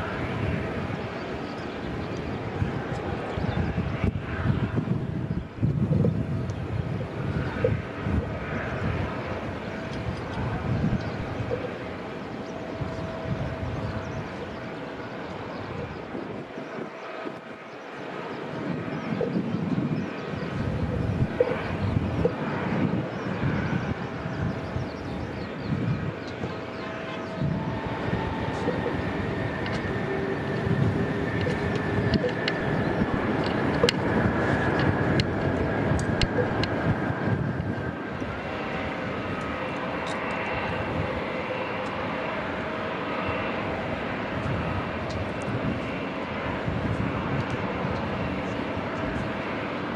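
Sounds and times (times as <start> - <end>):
distant jet engines rushing: 0.0 - 49.9
sharp ticks: 31.3 - 34.0, 34.7 - 36.8.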